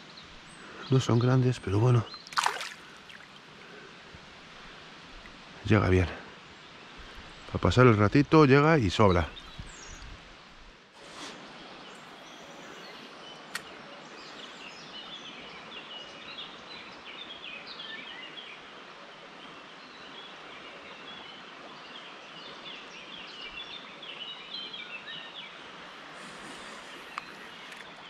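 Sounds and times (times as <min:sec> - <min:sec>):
river water rushing: 0:02.3 - 0:05.7
sharp click: 0:13.5 - 0:13.7.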